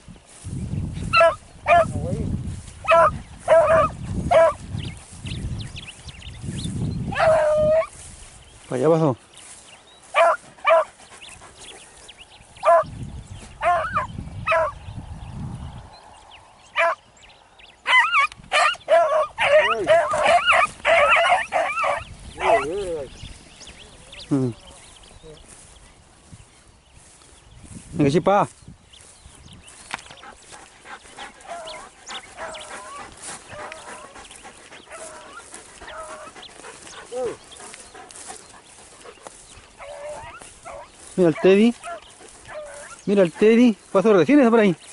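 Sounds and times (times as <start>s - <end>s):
hounds baying: 1.0s - 2.1s, 2.7s - 5.2s, 7.0s - 8.3s, 9.5s - 14.9s, 16.7s - 17.1s, 17.8s - 24.6s, 29.8s - 44.6s.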